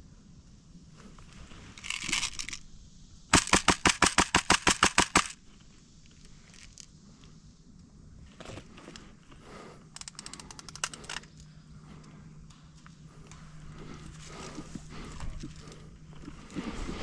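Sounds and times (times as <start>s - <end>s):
airsoft gun rapid firing: 3.3s - 5.4s.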